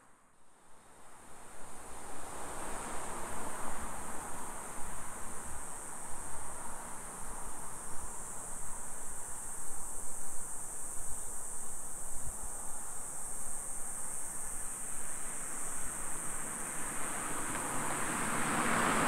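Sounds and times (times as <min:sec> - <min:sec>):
cicadas droning: 0:00.7 - 0:19.0
street traffic hum: 0:13.2 - 0:19.0.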